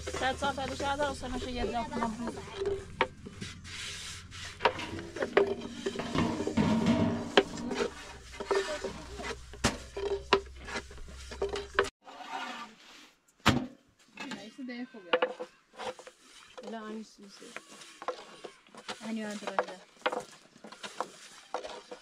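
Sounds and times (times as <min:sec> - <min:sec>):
rolling pin rolling dough: 0:17.4 - 0:22.0.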